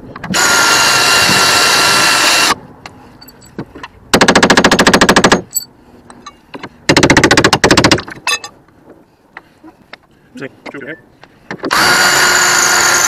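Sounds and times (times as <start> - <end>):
cordless drill running: 0.3 - 2.6, 11.7 - 13.0.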